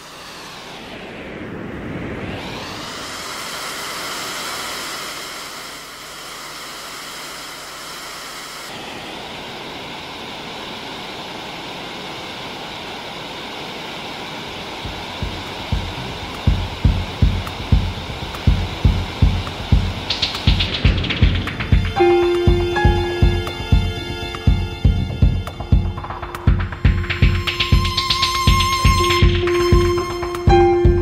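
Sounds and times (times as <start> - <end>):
dense electronic noise wash: 0.0 - 31.0
low thuds: 14.8 - 31.0.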